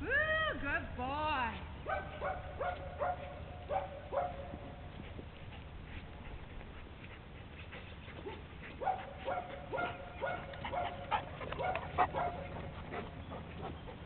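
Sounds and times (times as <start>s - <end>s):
dog barking: 1.8s - 4.6s, 8.3s - 12.6s.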